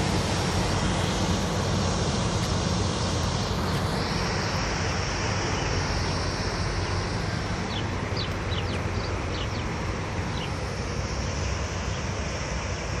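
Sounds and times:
boat engine rumble: 0.0 - 13.0
propeller wash churning water: 0.0 - 13.0
bird chirping: 6.7 - 10.6.

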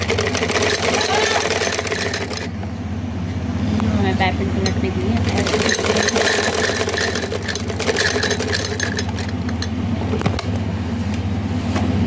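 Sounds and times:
sewing machine stitching: 0.0 - 2.5, 5.2 - 8.7.

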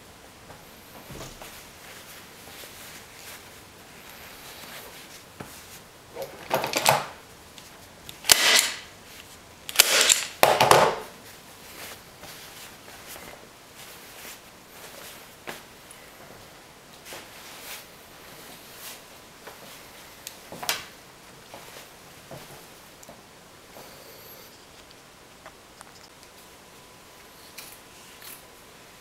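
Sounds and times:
fabric rustling: 0.9 - 6.4, 11.2 - 20.2
staple gun clacks: 8.1 - 8.9, 9.7 - 10.9.

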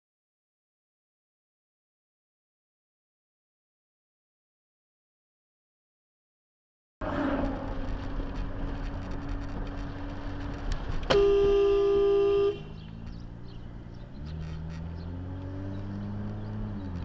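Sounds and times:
car engine accelerating: 7.0 - 11.7, 12.6 - 17.0
road noise: 7.0 - 17.0
car horn: 11.1 - 12.8.

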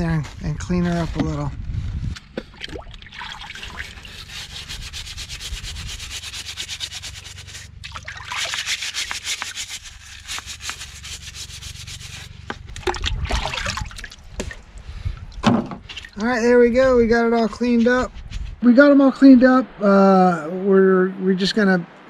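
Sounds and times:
scrubbing pulley in water: 3.1 - 13.8.

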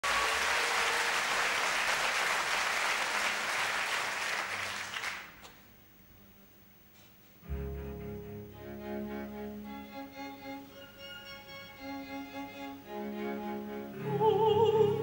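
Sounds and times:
audience applauding: 0.0 - 5.5.

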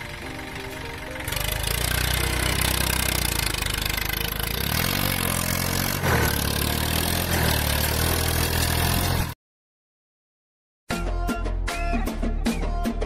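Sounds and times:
tractor diesel engine running: 0.0 - 9.4.

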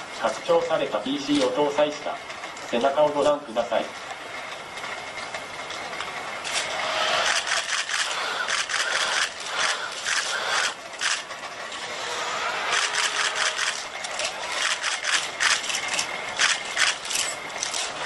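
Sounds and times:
robot motors whirring: 6.4 - 18.0.

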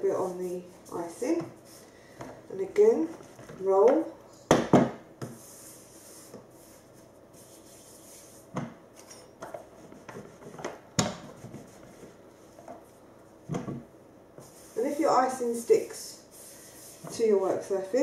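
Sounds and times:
rolling pin rubbing fondant: 5.2 - 8.5, 9.7 - 12.9, 14.4 - 17.6.

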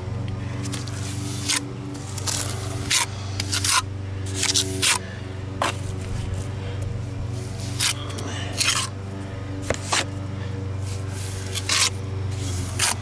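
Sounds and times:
trowel scraping cement: 0.7 - 5.0, 7.4 - 9.0, 9.6 - 10.1, 10.8 - 13.0.

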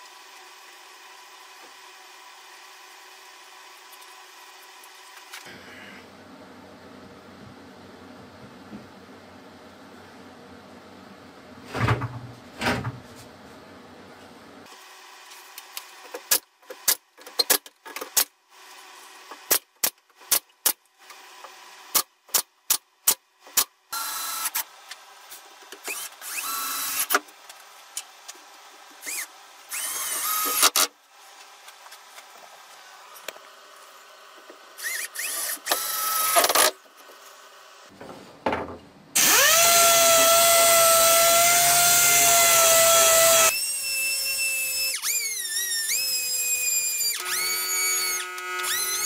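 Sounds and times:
power drill whining: 25.8 - 27.1, 29.0 - 30.8, 34.8 - 36.7, 39.2 - 49.0
pneumatic nail gun firing: 29.0 - 30.9, 34.8 - 36.8, 39.2 - 40.3, 42.0 - 49.0.

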